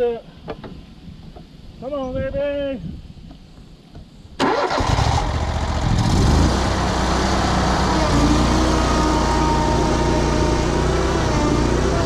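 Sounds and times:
mower engine running under load: 4.5 - 12.0.

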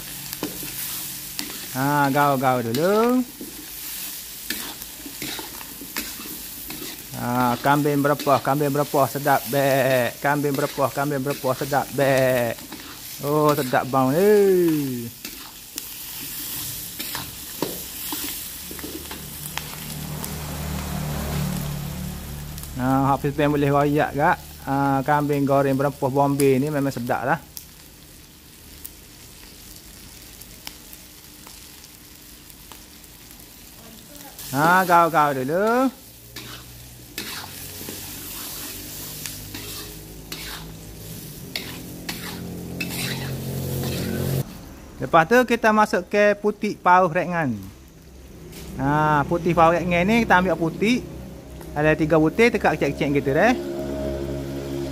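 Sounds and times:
meat sizzling in wok: 0.0 - 54.9
metal spatula scraping pan: 2.6 - 19.2, 36.3 - 44.4.

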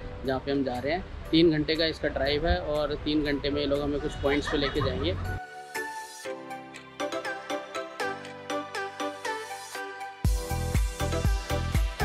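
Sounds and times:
heavy bass beat: 10.3 - 12.0.

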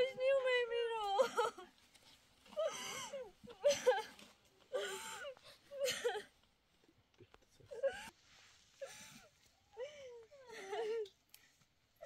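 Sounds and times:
person crying: 1.0 - 1.7.

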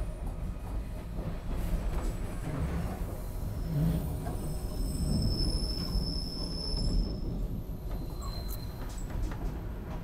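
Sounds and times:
subway car rumbling on track: 0.0 - 10.0
high wheel squeal: 3.6 - 9.1.

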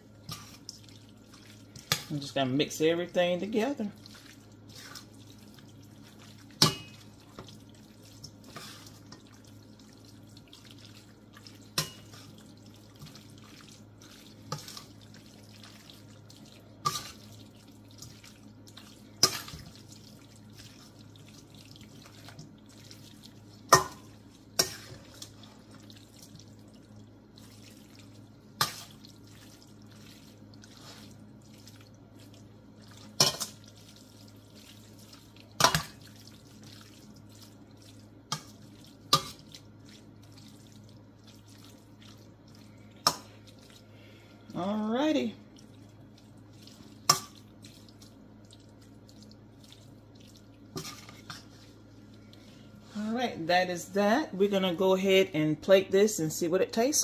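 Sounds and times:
metal spoon scraping a pan: 24.6 - 25.3, 50.7 - 51.6.

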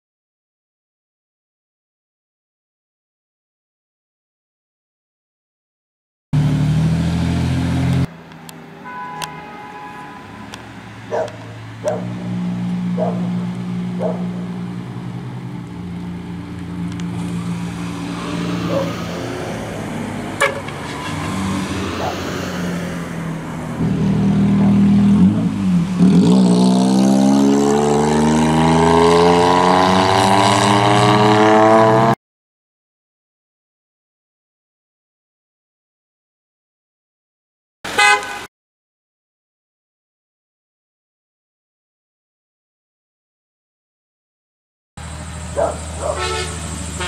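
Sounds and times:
truck engines driving by: 6.4 - 32.2, 45.0 - 47.0.

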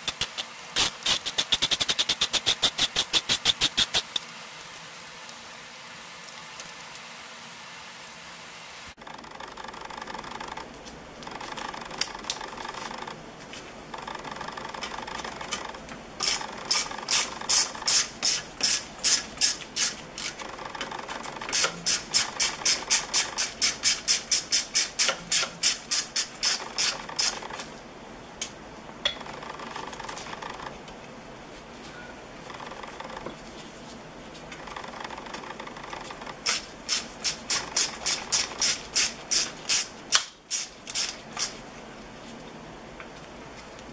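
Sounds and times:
ratchet wrench clicking: 0.1 - 4.1, 14.5 - 20.4, 21.5 - 27.5.

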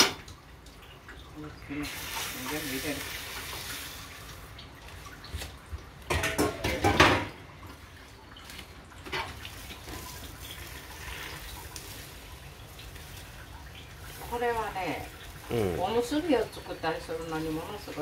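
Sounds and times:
tap water splashing in sink: 0.0 - 15.4
dishes clinking: 6.1 - 7.4.

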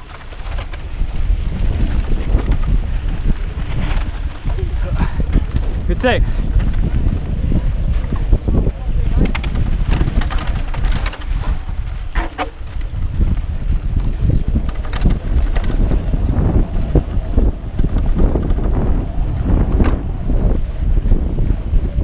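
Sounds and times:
bike rattling over bumps: 0.0 - 22.0
wind rushing over microphone: 0.0 - 22.0.

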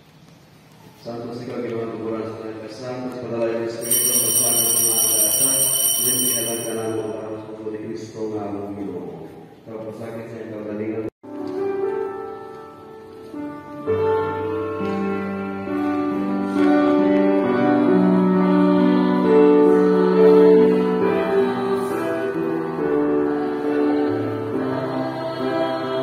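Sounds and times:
slow gentle chord music: 11.3 - 26.0.

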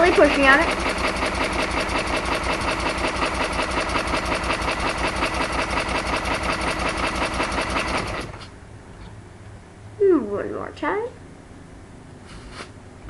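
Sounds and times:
pneumatic engine chuffing and clattering: 0.0 - 8.6.

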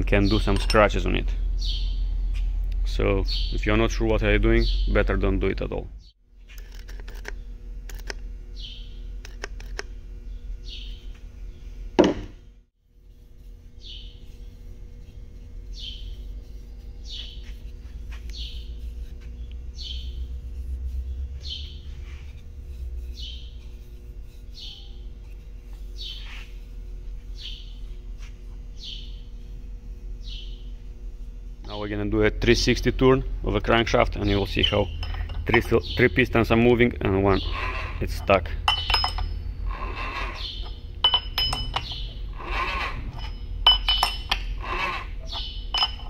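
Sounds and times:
steady low hum: 0.0 - 46.0
small bird chirping: 1.6 - 2.4, 8.6 - 9.1, 13.8 - 14.6, 15.7 - 17.6, 18.3 - 18.7, 19.3 - 20.3, 23.1 - 23.7, 24.5 - 25.1, 27.3 - 27.9, 28.8 - 29.3, 30.2 - 30.8, 40.3 - 40.8, 41.7 - 42.2, 45.2 - 45.9
loud thump: 12.0 - 12.4.

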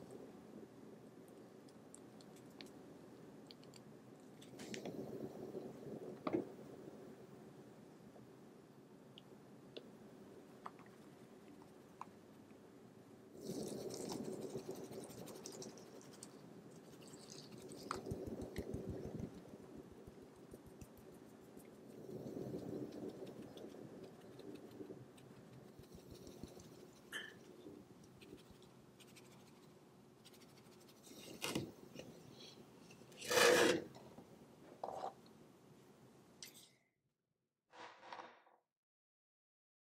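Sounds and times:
metal baking sheet scraping wood: 33.1 - 34.0.

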